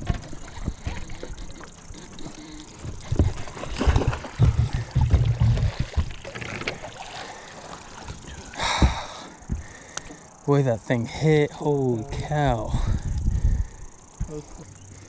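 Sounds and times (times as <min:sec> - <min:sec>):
water splashing: 0:00.0 - 0:09.9
wind and handling bumps on microphone: 0:02.8 - 0:06.9, 0:08.0 - 0:09.7, 0:12.1 - 0:14.6.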